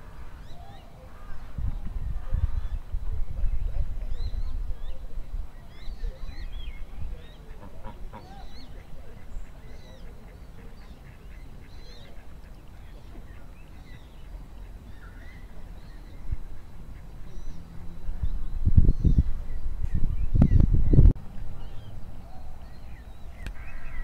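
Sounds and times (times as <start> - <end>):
small birds chirping: 0.4 - 24.0
duck or goose call: 7.5 - 12.4.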